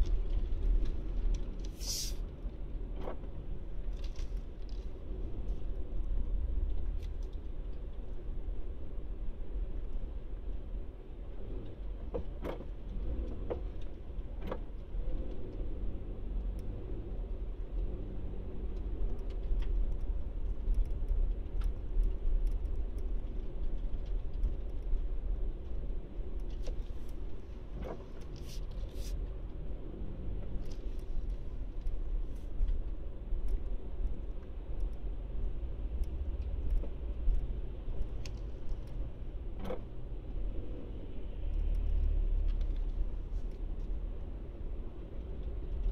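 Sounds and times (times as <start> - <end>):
car engine and road rumble: 0.0 - 45.9
light clicks and rattles: 18.7 - 29.6, 30.4 - 40.0.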